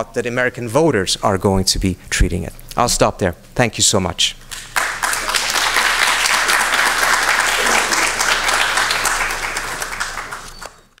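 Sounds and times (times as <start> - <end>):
audience applauding: 4.5 - 11.0.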